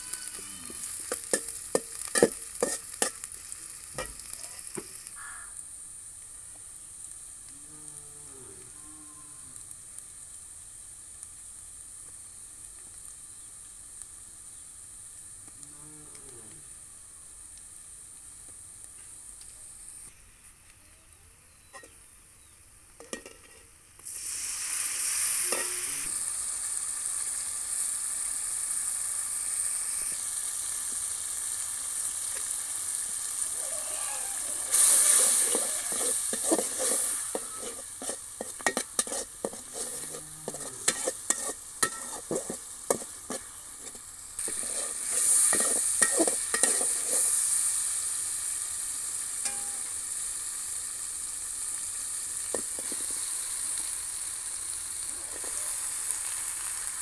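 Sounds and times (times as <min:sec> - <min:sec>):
onions sizzling in hot oil: 0:00.0 - 0:20.8, 0:21.6 - 0:57.0
spatula scraping a pot: 0:02.2 - 0:03.2, 0:34.7 - 0:47.3.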